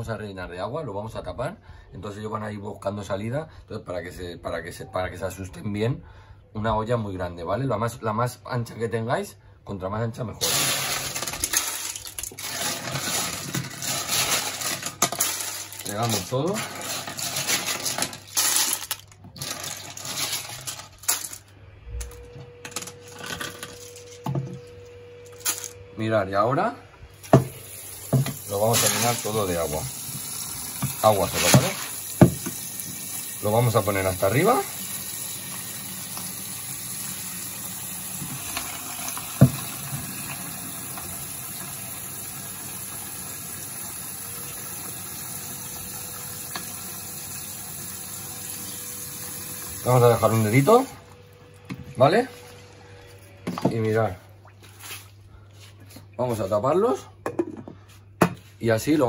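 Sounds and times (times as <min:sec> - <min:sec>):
snail shells clattering in pot: 0:10.4 - 0:21.4
tap running into pot: 0:30.8 - 0:32.7.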